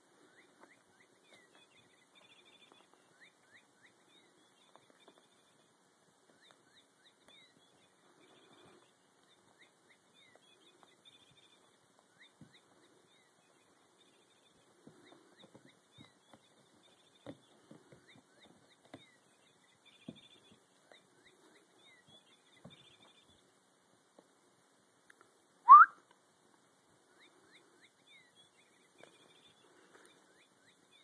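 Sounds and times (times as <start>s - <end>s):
faint high chirps: 25.6s - 26.0s.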